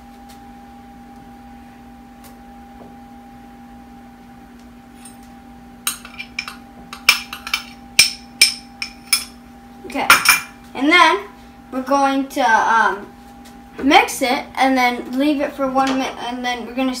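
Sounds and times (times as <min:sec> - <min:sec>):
low hum: 0:00.0 - 0:11.8.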